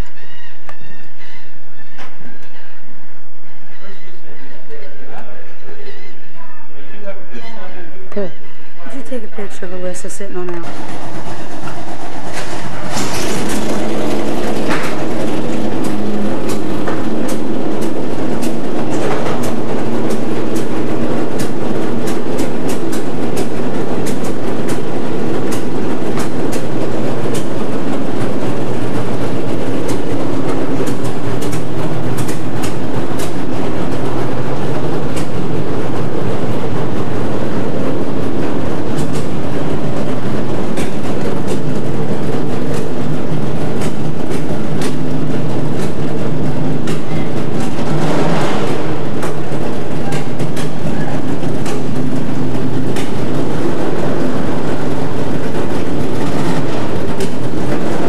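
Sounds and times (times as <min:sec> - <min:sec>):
powerboat engine idling: 0:00.0 - 0:58.0
sharp clicks: 0:13.4 - 0:27.6, 0:29.3 - 0:34.0, 0:38.9 - 0:39.4.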